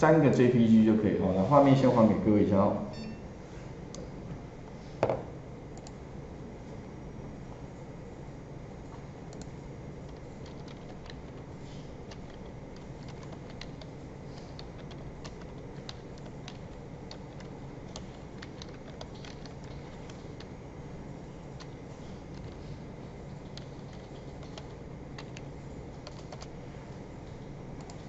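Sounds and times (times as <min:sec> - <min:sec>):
typing on keyboard: 0:09.3 - 0:20.6, 0:23.3 - 0:26.6, 0:27.2 - 0:28.0.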